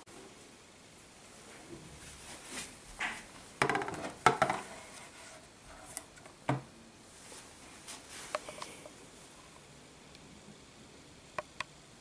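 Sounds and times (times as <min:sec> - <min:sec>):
pipe knocking on wooden table: 0:03.6 - 0:04.6
plastic pipe scraping on table: 0:03.6 - 0:05.5.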